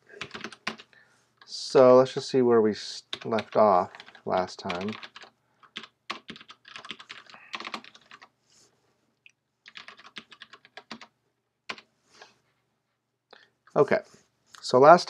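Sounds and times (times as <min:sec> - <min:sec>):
computer keyboard typing: 0:00.2 - 0:00.9, 0:03.1 - 0:08.3, 0:09.7 - 0:11.1.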